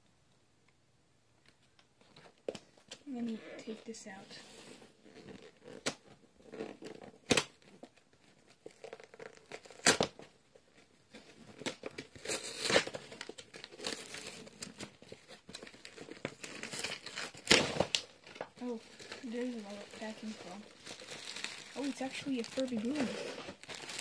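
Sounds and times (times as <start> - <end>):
plastic bag crinkling: 11.1 - 24.0.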